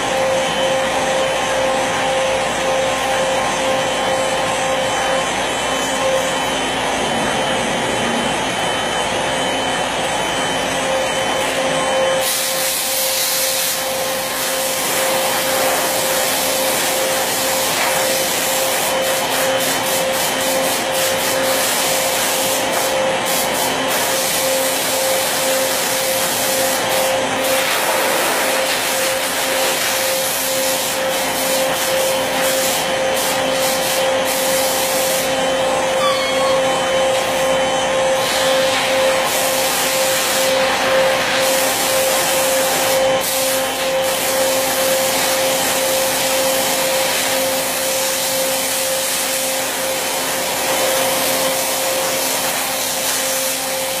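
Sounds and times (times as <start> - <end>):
router spindle whine: 0.0 - 54.0
loud hiss: 12.2 - 35.3.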